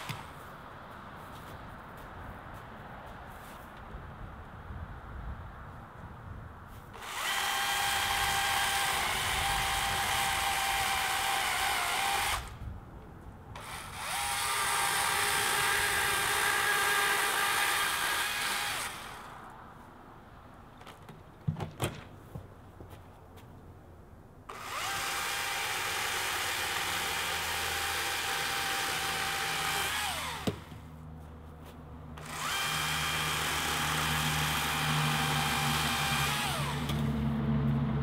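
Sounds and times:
chainsaw cutting wood: 0.0 - 0.4, 7.0 - 12.6, 13.6 - 19.4, 24.5 - 30.8, 32.2 - 37.2.

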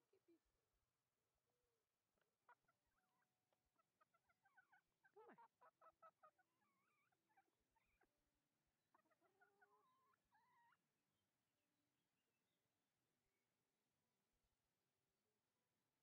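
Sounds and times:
faint chickens clucking: 2.2 - 8.1, 8.9 - 10.8.

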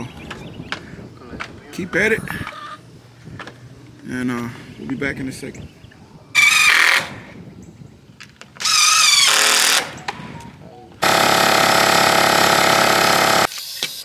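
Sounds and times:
air compressor motor running: 11.0 - 13.5.

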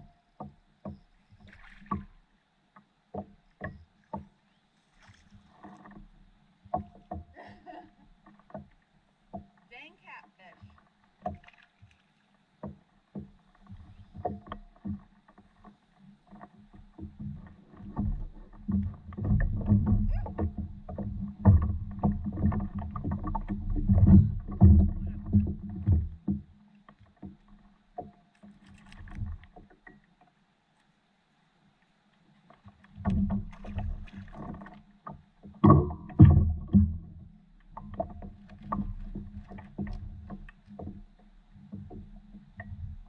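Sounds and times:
knocks on paddleboard hull: 12.6 - 15.8, 16.4 - 26.5, 33.0 - 43.0.

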